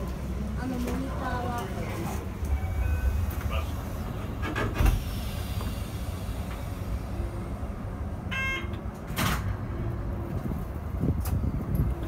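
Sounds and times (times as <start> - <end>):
train equipment humming: 0.0 - 12.0
sliding doors shutting: 1.7 - 7.0.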